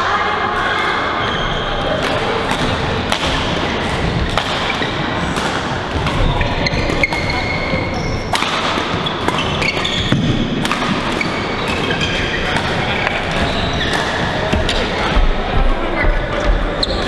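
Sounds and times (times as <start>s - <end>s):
rackets striking shuttlecocks: 2.0s - 15.2s
shoes squeaking on court floor: 3.8s - 5.2s, 5.9s - 15.2s, 16.4s - 17.0s.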